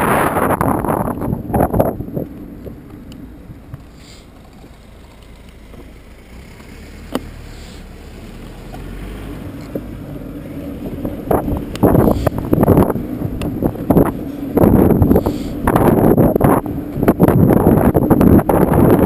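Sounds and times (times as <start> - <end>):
wind buffeting camera: 0.0 - 4.0, 8.4 - 19.0
low traffic rumble: 0.0 - 19.0.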